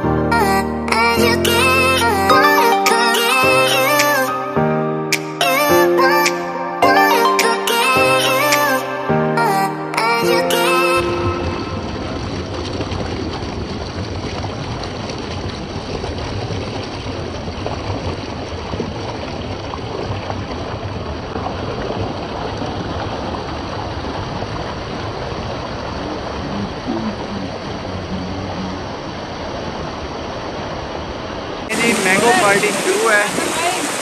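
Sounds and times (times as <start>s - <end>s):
fast-flowing water rushing: 10.1s - 34.0s.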